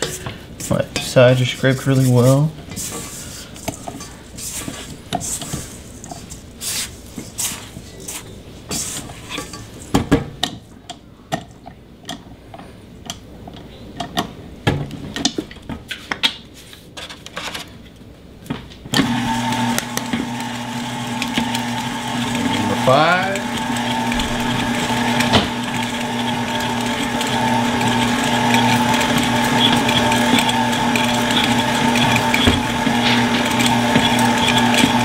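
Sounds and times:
spatula scraping a steel bowl: 0.0s - 9.8s, 21.1s - 35.0s
stand mixer running: 19.0s - 35.0s.

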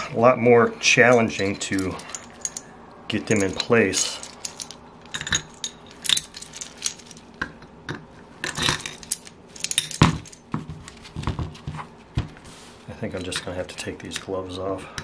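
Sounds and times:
metal puller parts clinking: 1.0s - 2.6s, 3.2s - 7.5s, 8.4s - 10.5s.

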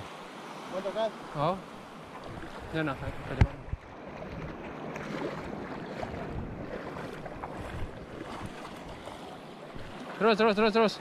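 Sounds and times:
small waves washing in surf: 0.0s - 11.0s
wind buffeting microphone: 2.1s - 10.1s.

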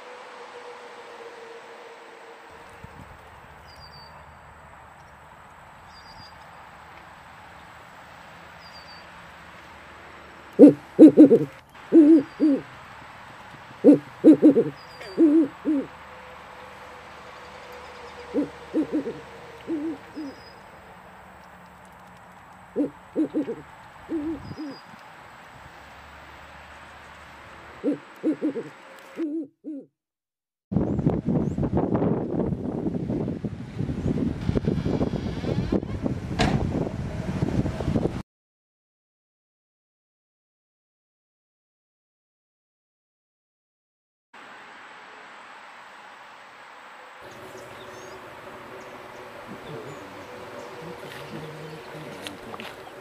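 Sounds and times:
owl hooting: 10.6s - 12.7s, 13.8s - 17.0s, 17.7s - 20.8s, 22.7s - 25.0s, 27.8s - 29.9s, 47.3s - 53.0s.

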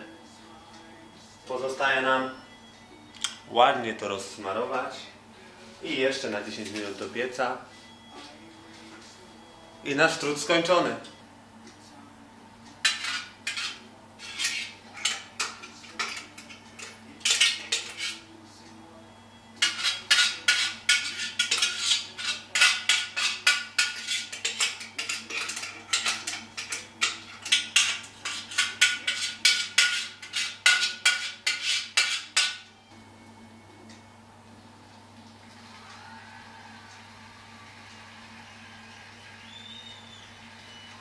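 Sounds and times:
spoon scraping a metal bowl: 12.8s - 18.3s, 19.6s - 32.6s.

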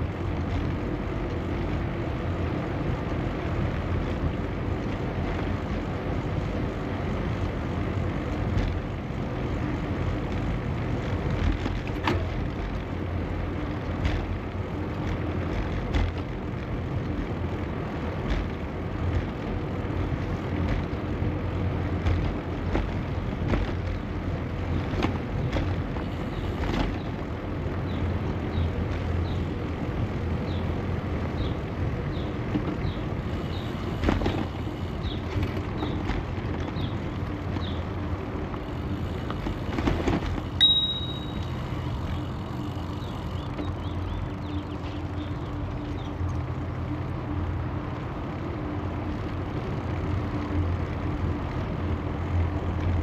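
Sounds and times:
bicycle tyres rolling: 0.0s - 53.0s
brief high ring: 40.6s - 41.5s
short high chirps: 40.6s - 41.5s.

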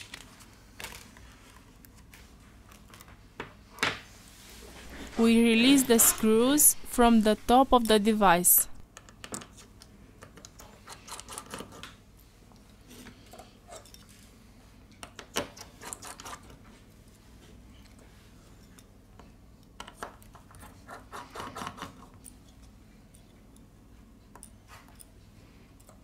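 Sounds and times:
faint steady hum: 0.0s - 9.0s.

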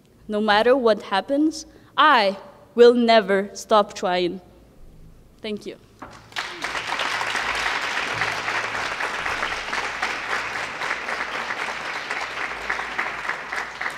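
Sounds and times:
audience applauding: 6.1s - 13.9s.

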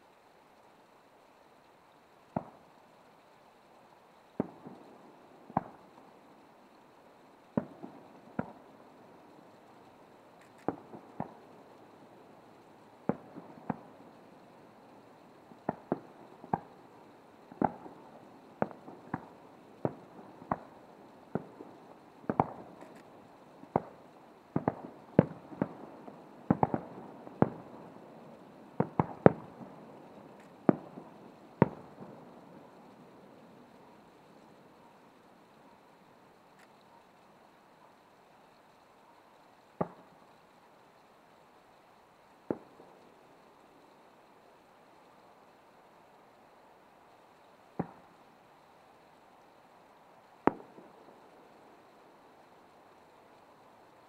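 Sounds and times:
firework shells bursting: 1.4s - 37.1s, 49.6s - 53.5s.

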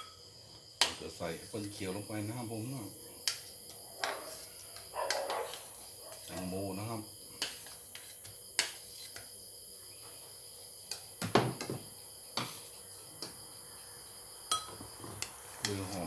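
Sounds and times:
faint insect chirring: 0.0s - 16.0s
steady background hiss: 0.0s - 16.0s
thump: 11.2s - 11.8s
spoon and bowls clinking: 14.5s - 14.8s.

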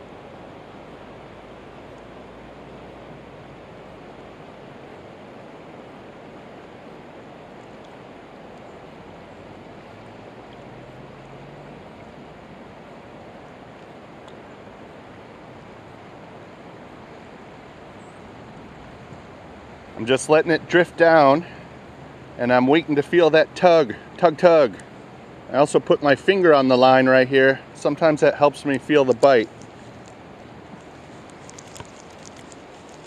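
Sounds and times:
river current rushing: 0.0s - 33.0s.

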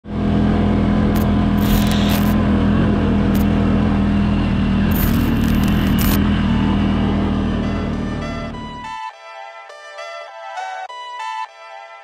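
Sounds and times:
atv engine running: 0.0s - 8.9s.

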